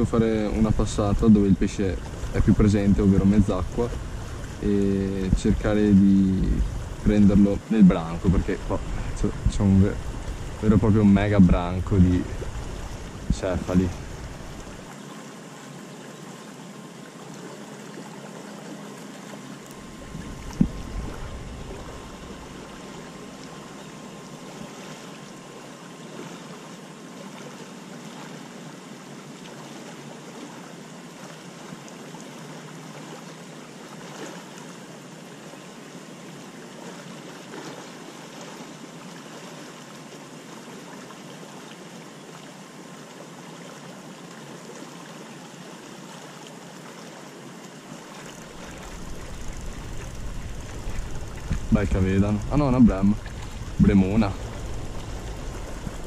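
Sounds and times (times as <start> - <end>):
low rumble: 0.0 - 14.9, 19.9 - 23.5, 48.5 - 56.0
river water rushing: 0.0 - 56.0.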